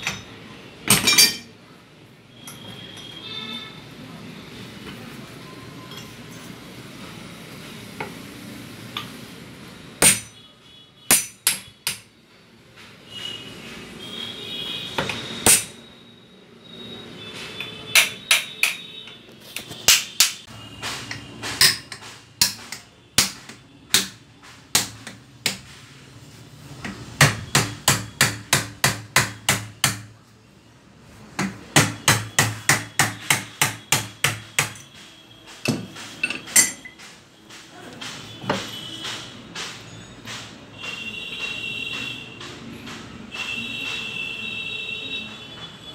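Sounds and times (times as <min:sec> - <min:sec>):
hammer on metal: 0:00.0 - 0:01.6, 0:10.0 - 0:12.2, 0:15.0 - 0:15.8, 0:17.6 - 0:19.2, 0:19.8 - 0:25.8, 0:26.8 - 0:30.2, 0:31.4 - 0:44.4.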